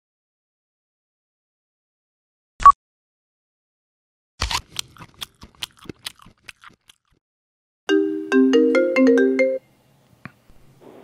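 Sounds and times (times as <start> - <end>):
internet call ringing tone: 7.9 - 9.6.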